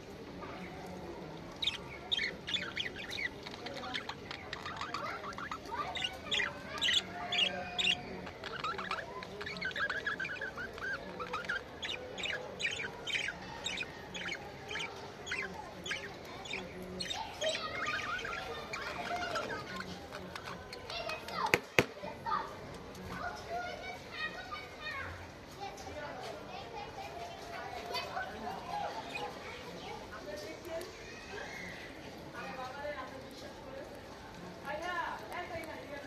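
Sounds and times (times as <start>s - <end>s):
budgerigars chirping and chattering: 1.4s - 21.2s, 27.3s - 29.7s.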